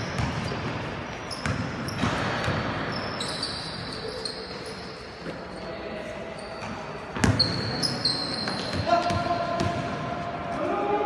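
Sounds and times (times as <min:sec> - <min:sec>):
sneakers squeaking on floor: 0:00.0 - 0:09.9
basketball bouncing: 0:00.1 - 0:00.8, 0:01.4 - 0:02.8, 0:07.2 - 0:07.6.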